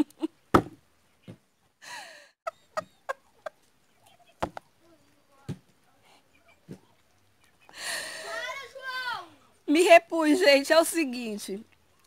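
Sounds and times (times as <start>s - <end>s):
woman laughing breathlessly: 1.8s - 3.5s.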